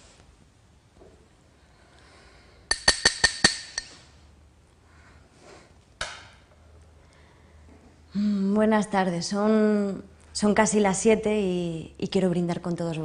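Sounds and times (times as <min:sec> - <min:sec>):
glass tapped with utensil: 0:02.7 - 0:04.0.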